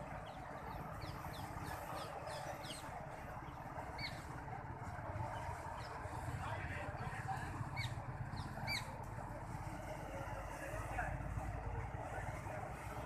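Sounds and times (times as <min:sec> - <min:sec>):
bird chirping: 0:00.2 - 0:04.2, 0:07.8 - 0:08.9.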